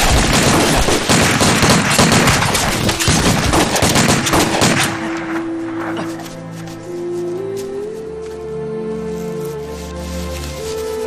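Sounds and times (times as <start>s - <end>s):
rapid gunfire: 0.0s - 5.4s.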